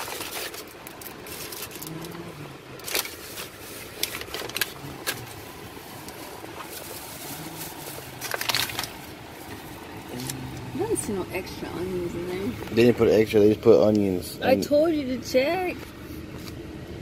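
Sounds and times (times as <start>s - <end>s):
plastic bag rustling and crinkling: 0.0s - 10.4s
car cabin hum: 0.7s - 17.0s.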